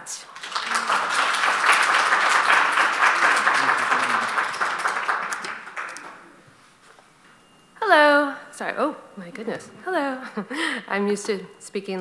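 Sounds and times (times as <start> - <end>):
audience applauding: 0.2 - 6.4.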